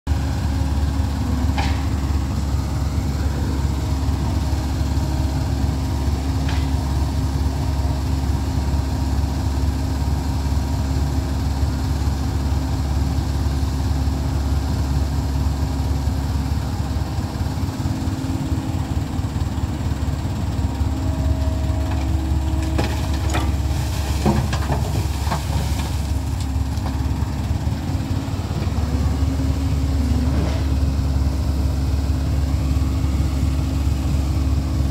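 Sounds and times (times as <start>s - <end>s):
excavator diesel engine: 0.0s - 34.9s
rocks knocking and clattering: 22.6s - 27.1s.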